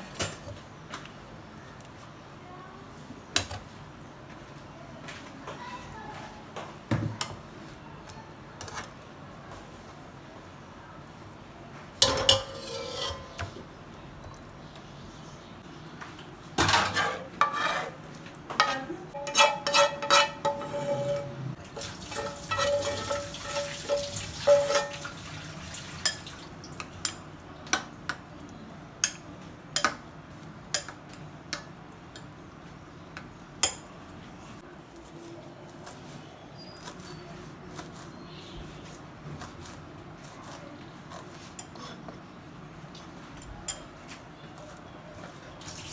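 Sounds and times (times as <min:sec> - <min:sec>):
spoon scraping ceramic bowl: 0:12.1 - 0:13.6, 0:16.8 - 0:18.0, 0:18.6 - 0:21.5
metal spatula clattering in pan: 0:18.6 - 0:21.3, 0:22.1 - 0:25.1.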